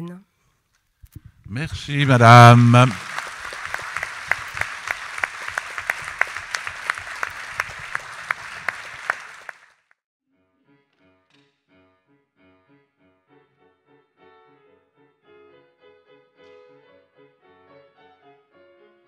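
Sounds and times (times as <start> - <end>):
audience applauding: 1.5 - 9.8.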